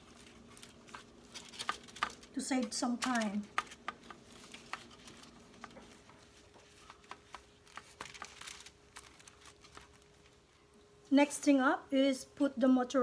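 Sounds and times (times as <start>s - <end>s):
faint steady hum: 0.0s - 13.0s.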